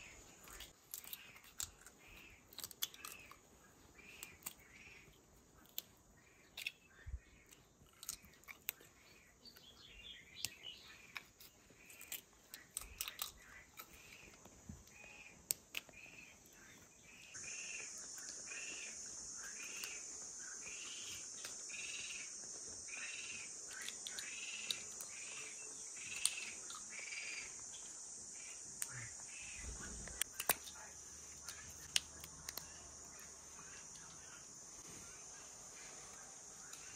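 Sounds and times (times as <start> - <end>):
sharp snapping clicks: 12.0 - 14.2, 23.7 - 27.1, 28.4 - 29.0, 30.1 - 30.8, 31.4 - 33.2
high insect buzz: 12.9 - 36.9.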